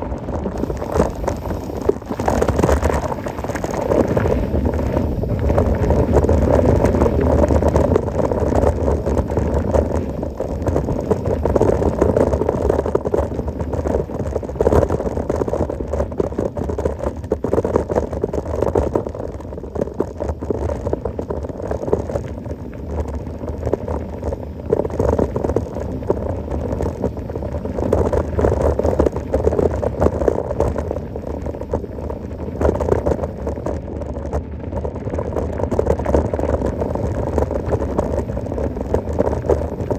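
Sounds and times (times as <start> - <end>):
bike rattling: 0.0 - 12.3
bike tyres rumbling on trail: 0.0 - 39.9.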